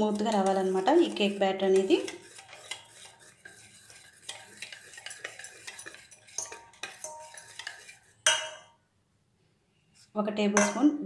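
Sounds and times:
wire whisk clicking in metal bowl: 0.0s - 8.5s.

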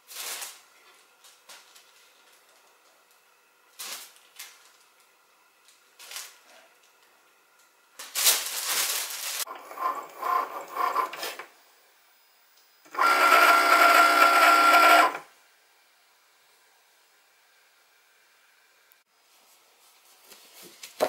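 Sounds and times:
cutting machine motor whirring: 9.5s - 12.1s, 12.8s - 15.3s.

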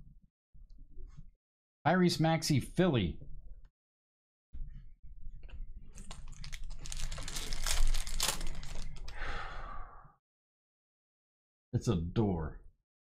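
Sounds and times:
foil wrapper crinkling and tearing: 6.0s - 9.1s.

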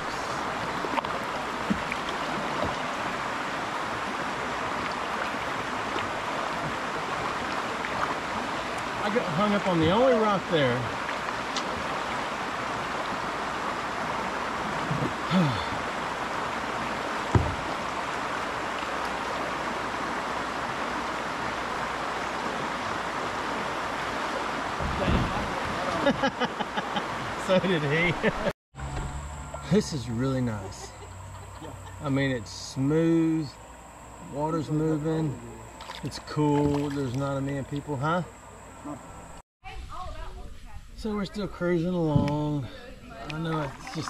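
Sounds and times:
creek water rushing over rocks: 0.0s - 28.5s, 35.7s - 38.5s, 43.2s - 44.0s.

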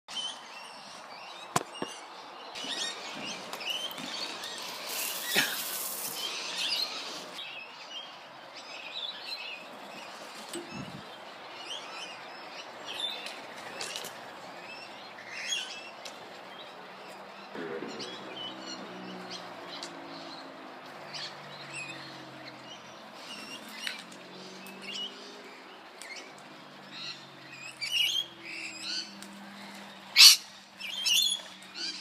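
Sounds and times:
parrots chirping and calling: 2.6s - 7.4s, 17.8s - 32.0s
sharp knocks: 17.6s - 19.0s.

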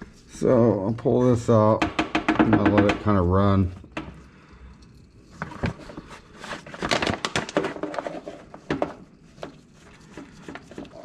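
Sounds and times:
plastic clicks and crinkling: 5.4s - 9.6s.

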